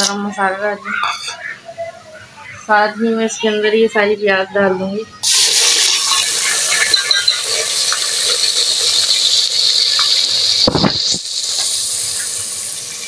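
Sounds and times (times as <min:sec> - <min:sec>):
paste sizzling in hot oil: 0:05.2 - 0:13.0.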